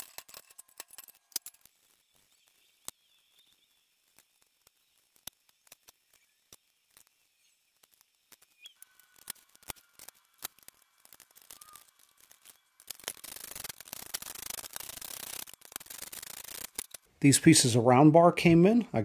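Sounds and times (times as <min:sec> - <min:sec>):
rubbing and handling noise: 0:03.8 - 0:19.0.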